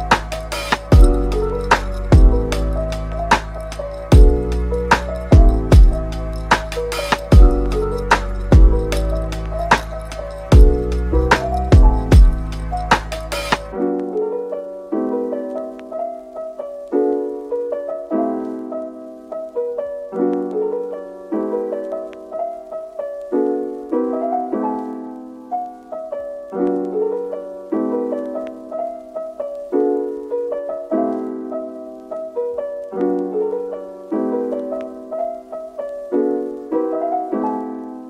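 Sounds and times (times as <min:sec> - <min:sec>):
soft piano chords: 0:00.0 - 0:38.0.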